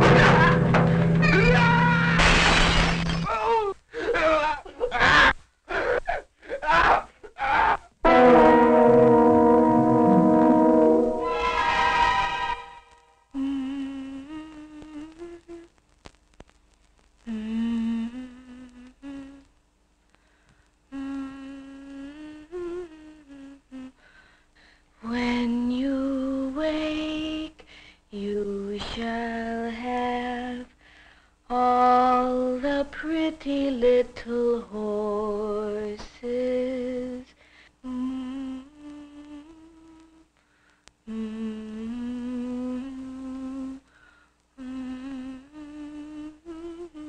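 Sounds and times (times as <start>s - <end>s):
woman humming a lullaby: 13.3s - 15.8s, 17.2s - 19.5s, 20.9s - 24.0s, 31.5s - 40.3s, 41.1s - 43.8s, 44.6s - 47.0s.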